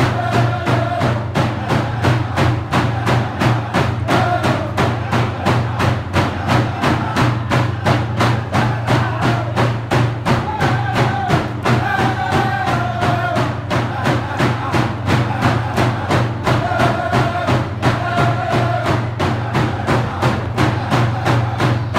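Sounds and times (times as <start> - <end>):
hand drums beating: 0.0 - 21.9
people singing held notes: 0.0 - 21.9.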